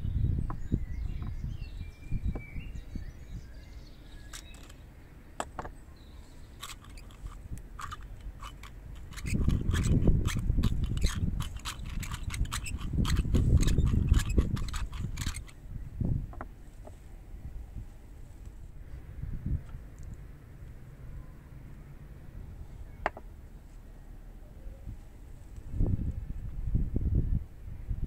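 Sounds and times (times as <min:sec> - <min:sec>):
pepper mill grinding: 0:04.2 - 0:04.8, 0:06.6 - 0:15.6.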